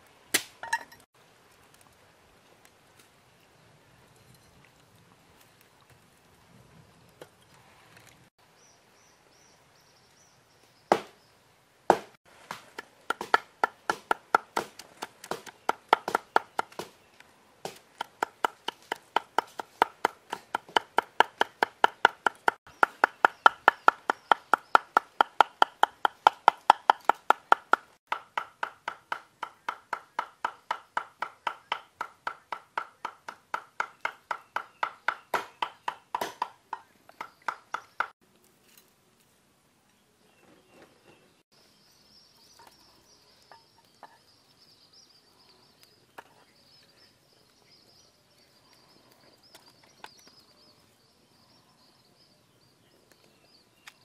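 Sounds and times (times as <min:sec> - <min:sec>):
cleaver chopping on wooden board: 0:10.9 - 0:11.2, 0:11.9 - 0:17.0, 0:17.7 - 0:38.2.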